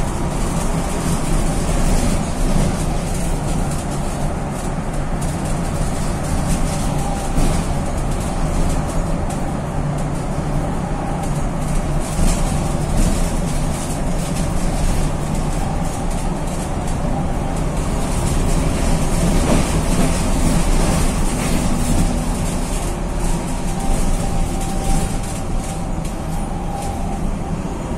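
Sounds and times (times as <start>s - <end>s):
bus engine droning: 0.0s - 27.9s.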